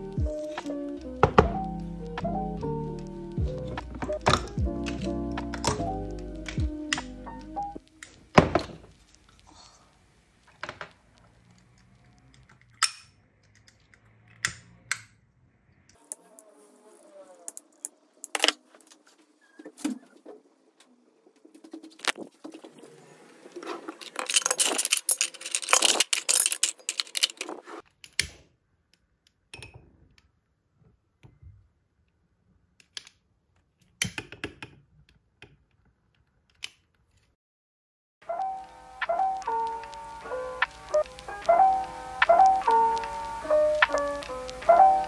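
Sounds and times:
utensils rattling: 23.6 - 27.7
metal utensils clinking in drawer: 23.8 - 27.6.

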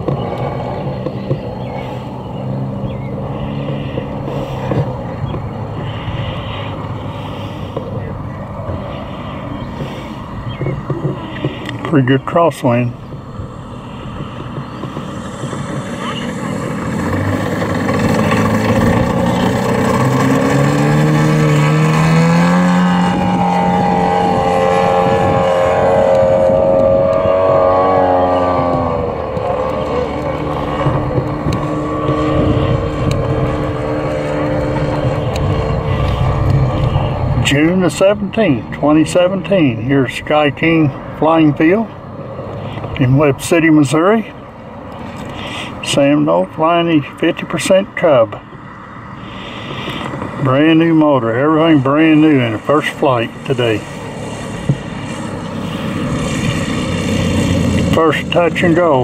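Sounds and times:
wind buffeting microphone: 0.0 - 45.9, 48.4 - 59.0
model airplane engine droning: 0.0 - 59.0.

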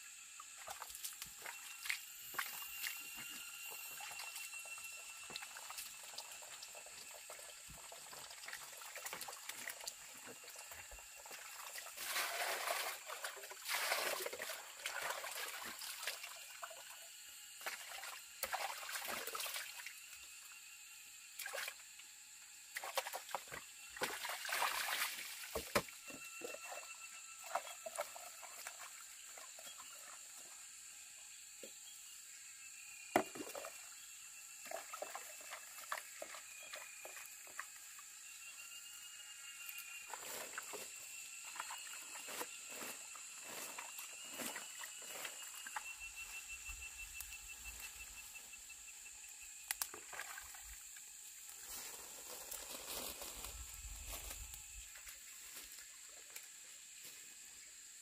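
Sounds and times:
faint high whine: 0.0 - 58.0
water trickling and splashing: 0.5 - 17.0, 22.8 - 25.8, 49.8 - 53.0.

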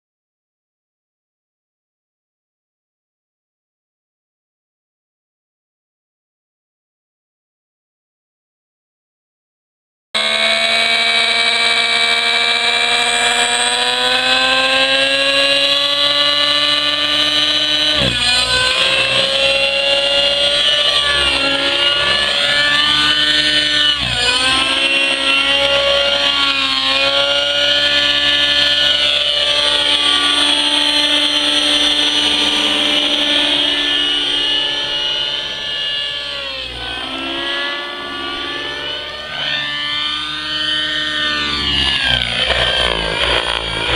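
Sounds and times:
model helicopter engine whine: 10.2 - 43.9.

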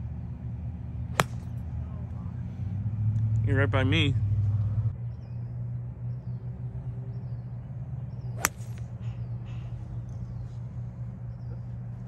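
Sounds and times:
steady low hum: 0.0 - 12.0
golf club striking ball: 1.1 - 1.7, 8.4 - 8.9.

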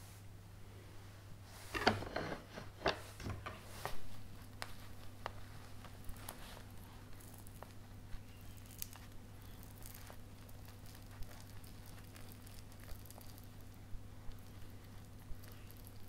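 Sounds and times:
wet crackling of squeezed fruit: 4.4 - 16.0.

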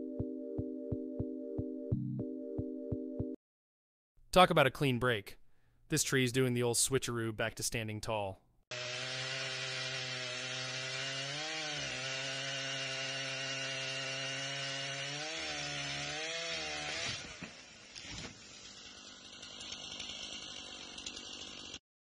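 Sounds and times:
petrol chainsaw cutting: 8.7 - 21.8.

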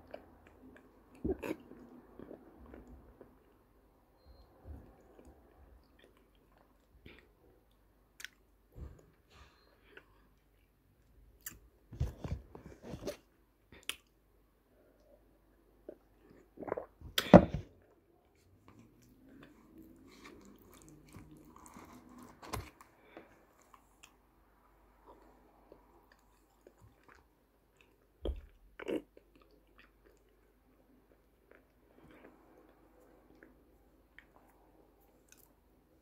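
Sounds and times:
person chewing wet paste: 0.0 - 3.6, 4.2 - 8.5, 15.8 - 17.0, 17.8 - 35.8.

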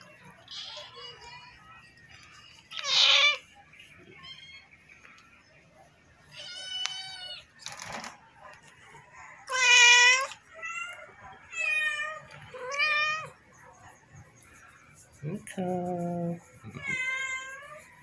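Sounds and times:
cat meowing: 2.7 - 3.4, 6.3 - 7.4, 9.5 - 13.3, 16.7 - 17.8.

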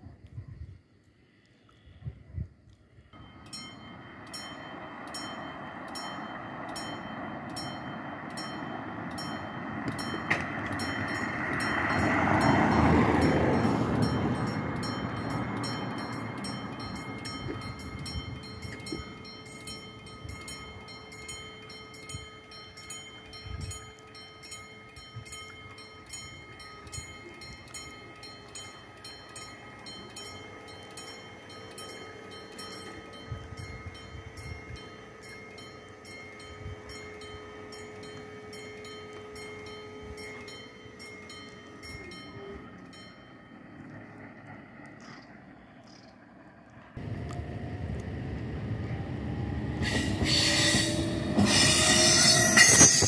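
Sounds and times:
level crossing warning bell ringing: 3.1 - 44.8, 47.0 - 53.0
passing car: 3.2 - 21.3, 40.2 - 53.0
barrier motor hum: 3.2 - 53.0.

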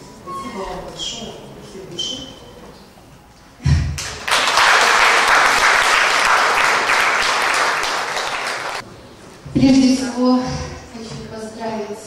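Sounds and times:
audience applauding: 4.0 - 8.8.

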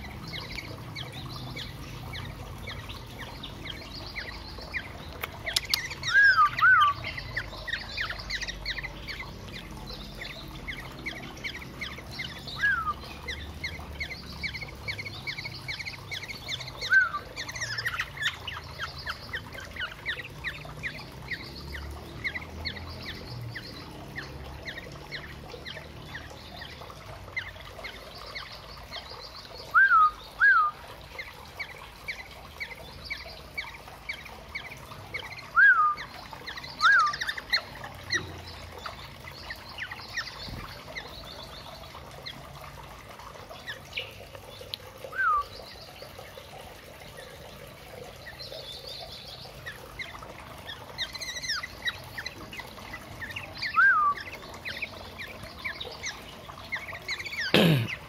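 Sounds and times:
birds rapid chirping: 0.0 - 58.0
loud down-slurred bird calls: 49.4 - 58.0.

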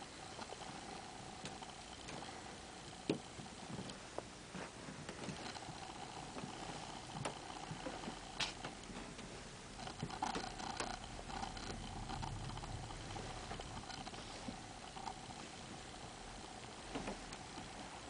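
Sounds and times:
steady room hum: 0.0 - 18.0
small clicks and knocks: 1.4 - 4.3, 5.0 - 15.7.

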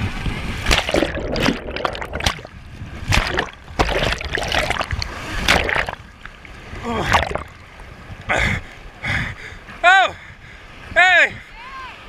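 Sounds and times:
water washing over camera: 0.0 - 7.7.

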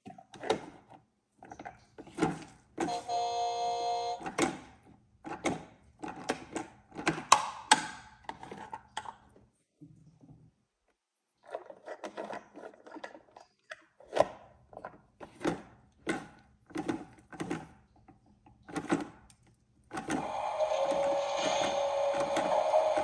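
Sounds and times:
plastic toy clicking and clacking: 4.2 - 9.3, 11.5 - 17.9, 18.6 - 23.0.

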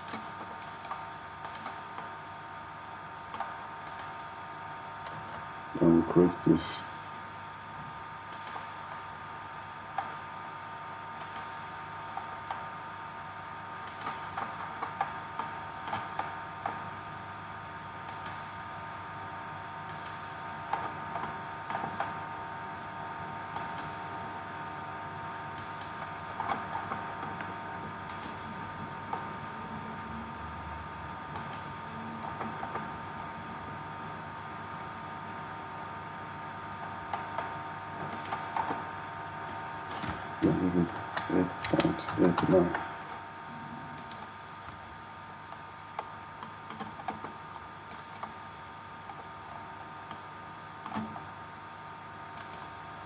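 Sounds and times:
computer mouse clicks: 0.0 - 2.1, 3.3 - 4.2, 8.3 - 8.7, 11.2 - 12.6, 13.8 - 16.8, 18.0 - 18.4, 19.8 - 22.2, 23.5 - 24.0, 25.5 - 27.4, 28.0 - 28.4, 31.3 - 32.9, 37.1 - 42.8, 43.9 - 44.5, 45.5 - 47.3, 47.9 - 48.4, 50.8 - 51.3, 52.4 - 52.7
steady hum: 0.0 - 53.0.

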